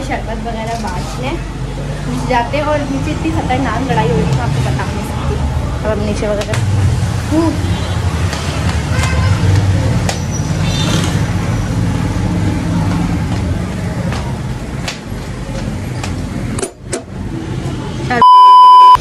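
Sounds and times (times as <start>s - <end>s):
high test tone beep: 18.2s - 19.0s.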